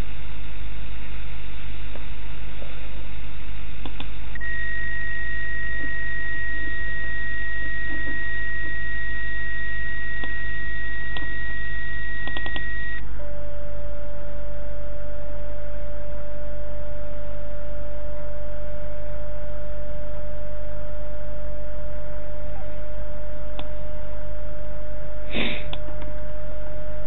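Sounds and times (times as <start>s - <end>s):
low hum: 0.0s - 27.0s
steady lower tone: 0.0s - 27.0s
faint clicks: 3.8s - 4.1s
high beep tone: 4.4s - 13.0s.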